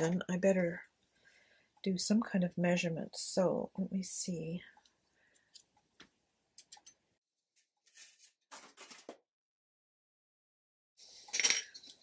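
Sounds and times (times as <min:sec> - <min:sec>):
tools clattering set down: 0:11.2 - 0:12.0.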